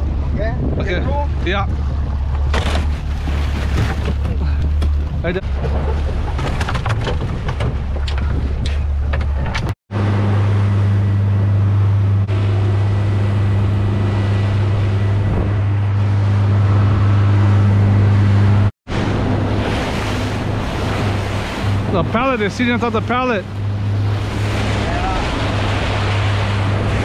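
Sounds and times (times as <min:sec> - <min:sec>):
outboard motor humming: 0:00.0 - 0:27.0
wind: 0:00.0 - 0:27.0
rushing water: 0:01.3 - 0:06.6, 0:19.2 - 0:27.0.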